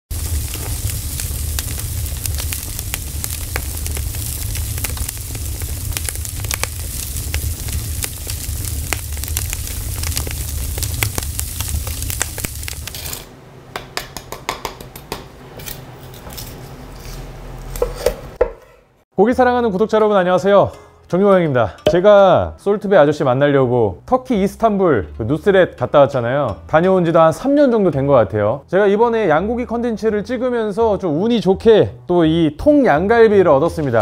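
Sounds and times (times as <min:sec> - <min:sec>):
low rumble: 0:00.1 - 0:13.1
sharp crackles: 0:00.1 - 0:13.3
meat sizzling over fire: 0:00.1 - 0:13.4.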